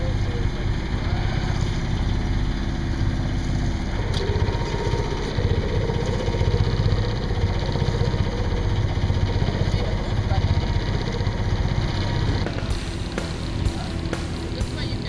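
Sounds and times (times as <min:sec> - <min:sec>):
boat engine rumbling: 0:00.0 - 0:15.0.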